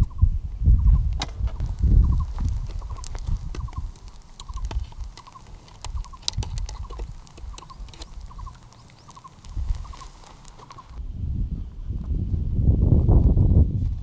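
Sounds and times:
light irregular crackling and clicking: 1.1s - 11.0s.

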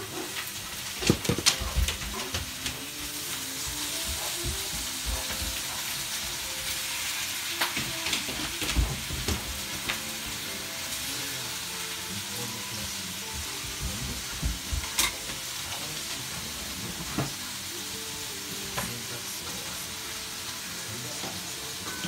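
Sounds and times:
dog paws scrabbling on wooden floor: 0.2s - 6.6s, 13.3s - 15.0s.

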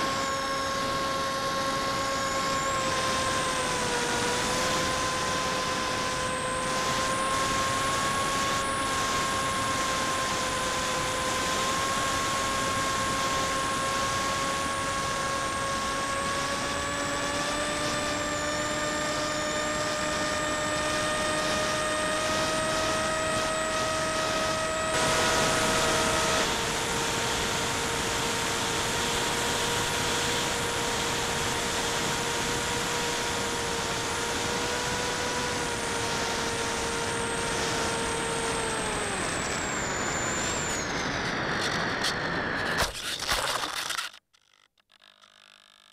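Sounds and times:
drone motors whining: 0.0s - 45.8s.

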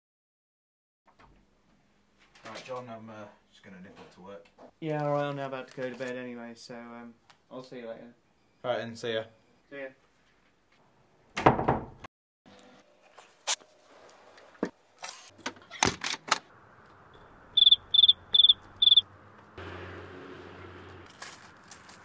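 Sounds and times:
cricket chirping: 17.2s - 19.0s.

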